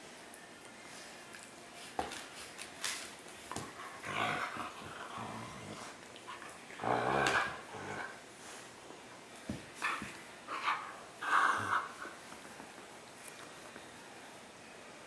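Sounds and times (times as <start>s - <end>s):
dog growling: 3.9s - 8.2s.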